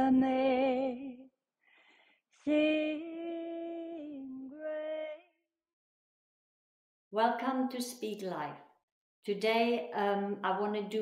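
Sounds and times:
woman singing: 0:00.0 - 0:01.4, 0:02.4 - 0:05.4
breath: 0:01.6 - 0:02.4.

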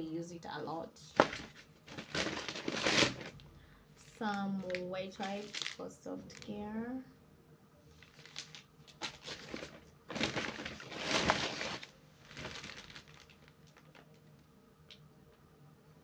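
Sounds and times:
paper bag rustling: 0:01.1 - 0:03.4, 0:04.6 - 0:06.6, 0:07.9 - 0:14.1
plastic packaging crinkling: 0:01.1 - 0:03.4, 0:04.0 - 0:06.6, 0:07.9 - 0:14.2.

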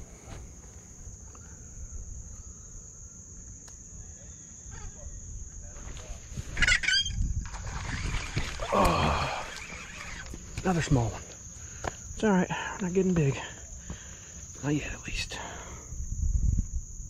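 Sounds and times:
insect chirring: 0:00.0 - 0:17.0
rustling and splashing: 0:05.8 - 0:11.4.

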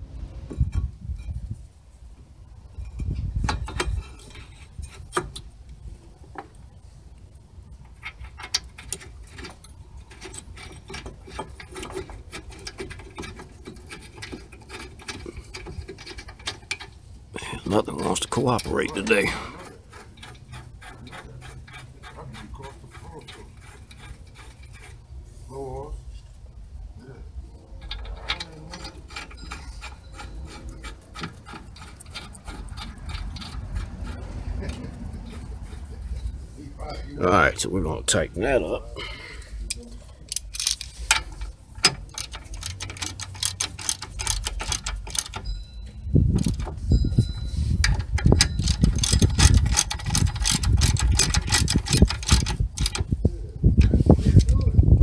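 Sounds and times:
metal clicks and scraping: 0:02.7 - 0:06.7, 0:07.7 - 0:25.4, 0:27.6 - 0:38.7, 0:39.5 - 0:55.0
metal parts knocking: 0:07.9 - 0:25.0, 0:27.8 - 0:36.3, 0:40.3 - 0:47.2, 0:47.8 - 0:54.5
socket ratchet clicking: 0:40.3 - 0:45.5, 0:47.9 - 0:53.2.

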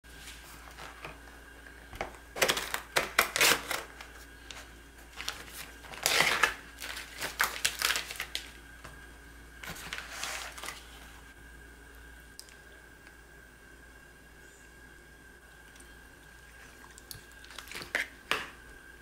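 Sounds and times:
plastic film crinkling and tearing: 0:02.3 - 0:08.6, 0:09.6 - 0:11.1.

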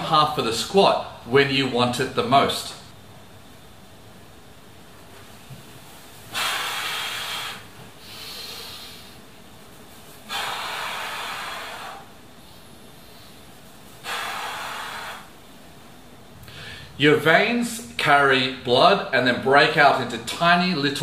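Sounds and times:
man breathing hard: 0:06.2 - 0:09.3, 0:10.2 - 0:15.5, 0:16.4 - 0:17.0.

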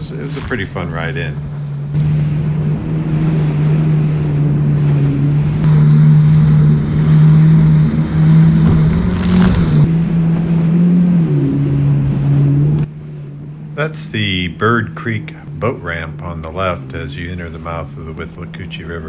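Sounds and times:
wind and spray rushing: 0:00.0 - 0:13.1
jet ski engine running: 0:00.0 - 0:19.0.

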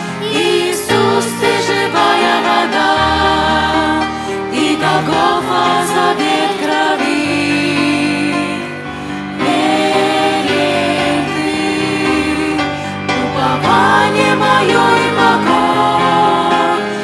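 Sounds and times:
group singing a hymn: 0:00.0 - 0:17.0.

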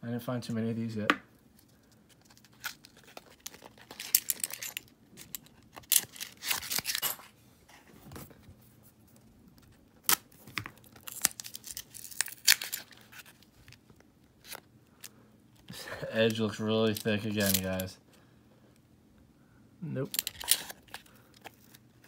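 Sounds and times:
paper wrapper tearing and crumpling: 0:05.8 - 0:07.0, 0:10.0 - 0:13.5.

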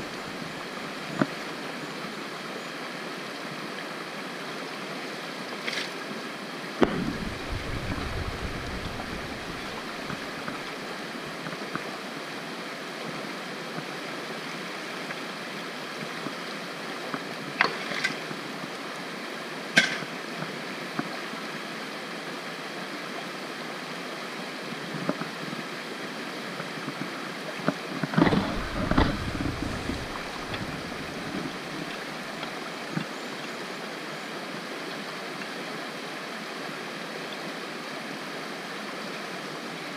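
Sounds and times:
creek water running over stones: 0:00.0 - 0:39.9
knocks of rock and tool: 0:06.8 - 0:10.7, 0:19.8 - 0:20.1, 0:28.2 - 0:32.5
low rumbling: 0:06.8 - 0:10.8, 0:28.2 - 0:32.5.

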